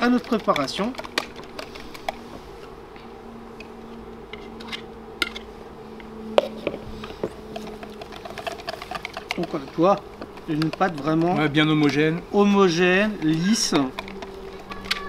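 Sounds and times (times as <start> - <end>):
batter whisked in a bowl: 0.0 - 1.1, 7.4 - 11.6
steady low hum: 0.0 - 15.0.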